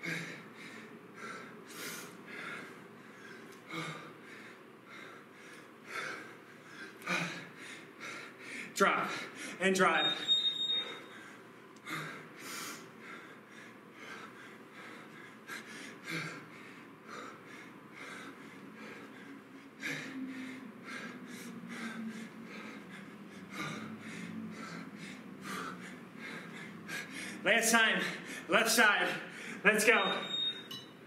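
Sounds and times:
man breathing hard: 0:00.0 - 0:30.3
timer beep: 0:09.8 - 0:11.1, 0:29.7 - 0:31.0.

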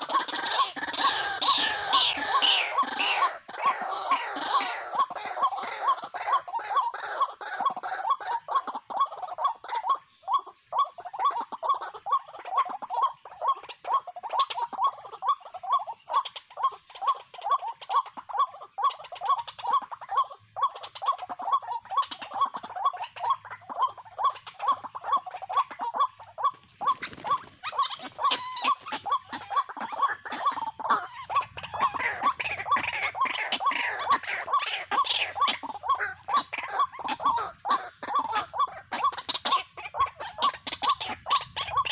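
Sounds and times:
waterhens croaking calls: 0:00.0 - 0:41.9
bird wings flapping: 0:26.5 - 0:28.1.

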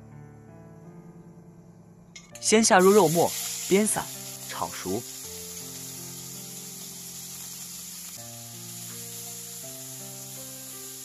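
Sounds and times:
background music: 0:00.0 - 0:11.0
person speaking: 0:02.4 - 0:05.1
meat sizzling in hot oil: 0:02.7 - 0:11.0.

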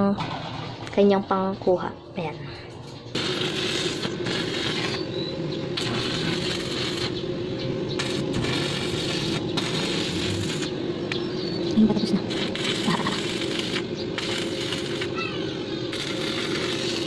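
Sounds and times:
welding arc crackling: 0:03.1 - 0:15.3, 0:15.9 - 0:17.0.

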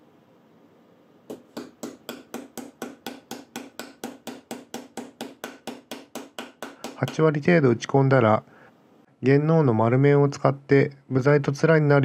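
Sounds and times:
hammer tapping metal insert: 0:01.3 - 0:07.4.

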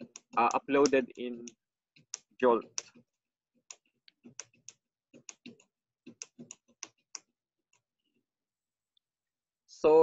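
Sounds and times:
typing on computer keyboard: 0:00.0 - 0:07.9.

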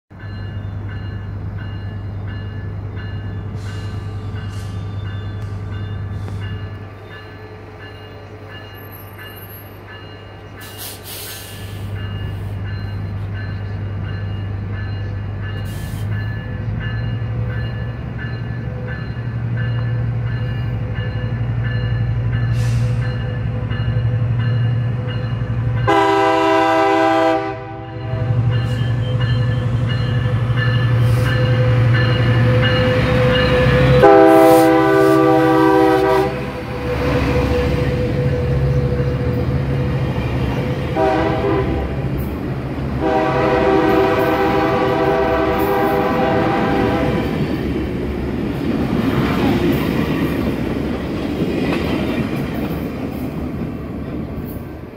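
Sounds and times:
locomotive engine drone: 0:00.1 - 0:54.9
train horn chord: 0:25.8 - 0:29.2, 0:30.9 - 0:40.0, 0:40.6 - 0:42.1, 0:43.0 - 0:47.4.

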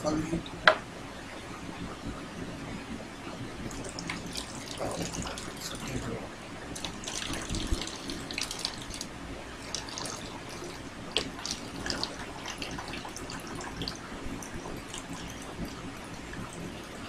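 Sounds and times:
water pouring into a plastic bottle: 0:03.7 - 0:06.0, 0:06.7 - 0:17.0.

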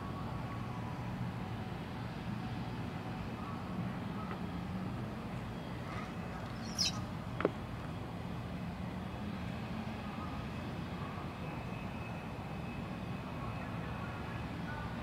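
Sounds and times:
traffic engine hum: 0:00.0 - 0:11.3
high chirp: 0:06.6 - 0:07.0.

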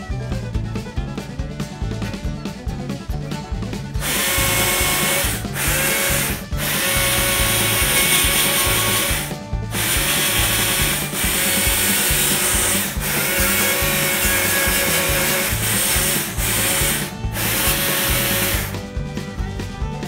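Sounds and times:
background music with steady beat: 0:00.0 - 0:20.0
chainsaw cutting wood: 0:04.0 - 0:18.8.

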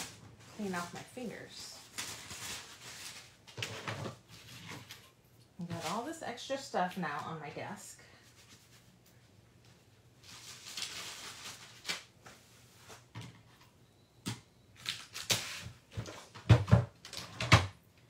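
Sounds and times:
rustle of craft supplies: 0:00.0 - 0:13.8.

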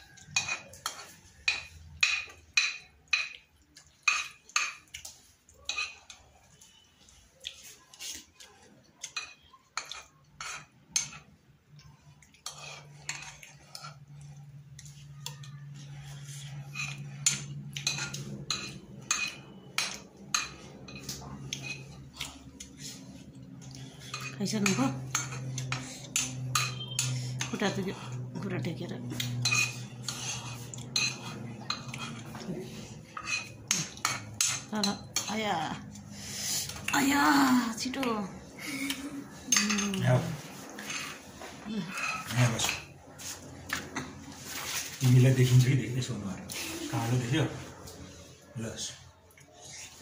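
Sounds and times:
low steady hum: 0:09.1 - 0:50.0
metal spoon clinking on pot: 0:24.1 - 0:27.6.

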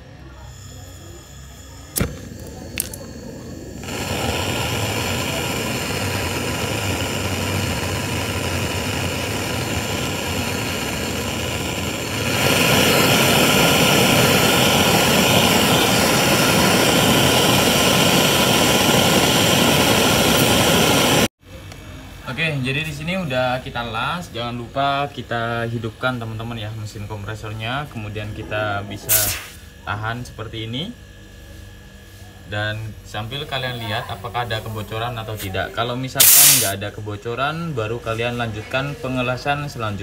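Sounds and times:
gas torch hissing: 0:00.0 - 0:21.3, 0:23.2 - 0:30.4, 0:32.7 - 0:40.0
lighter click: 0:02.0 - 0:03.0.

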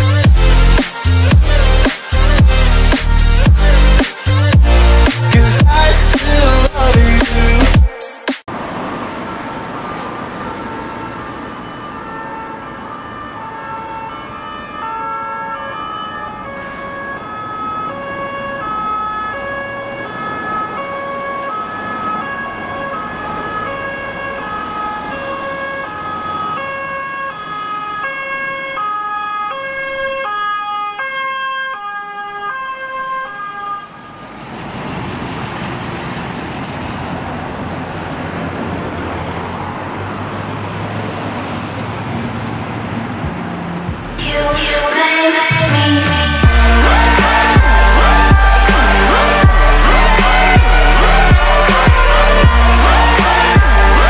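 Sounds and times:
road noise: 0:00.0 - 0:54.0
ambulance two-tone siren: 0:08.5 - 0:34.4, 0:44.2 - 0:54.0
vehicle engine rumble: 0:34.2 - 0:54.0.

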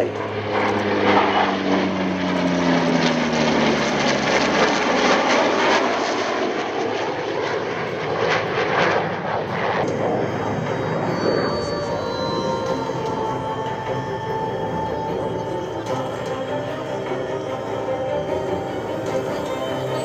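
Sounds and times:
aircraft flying past: 0:00.0 - 0:20.0
jet noise: 0:00.0 - 0:20.0.

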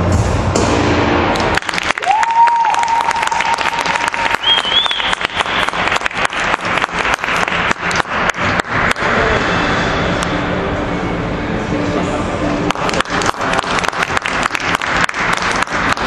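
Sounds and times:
small audience applauding: 0:01.3 - 0:09.1, 0:12.7 - 0:16.0
person whistling: 0:04.4 - 0:05.6.

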